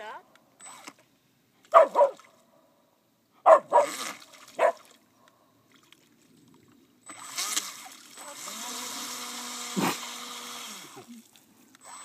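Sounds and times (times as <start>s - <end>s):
small motor whirring: 0.6s - 1.0s, 7.0s - 12.0s
dog barking: 1.7s - 2.2s, 3.4s - 4.0s, 4.6s - 4.8s.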